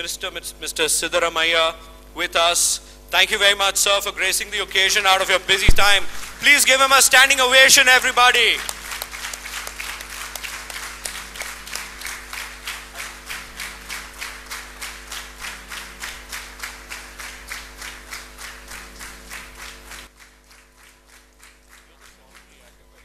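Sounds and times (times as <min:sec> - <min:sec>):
audience clapping: 0:05.8 - 0:23.0.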